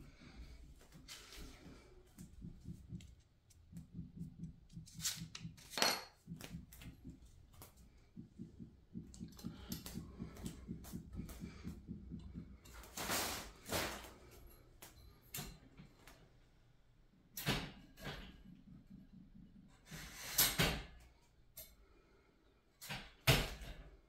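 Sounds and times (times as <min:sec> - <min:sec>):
metal tubes knocking together: 0:02.4 - 0:12.9.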